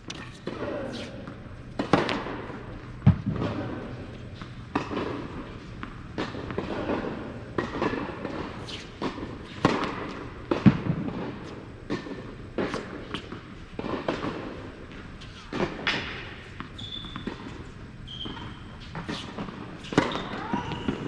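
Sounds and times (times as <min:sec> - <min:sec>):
racket striking tennis ball: 0:00.1 - 0:14.5, 0:18.3 - 0:21.0.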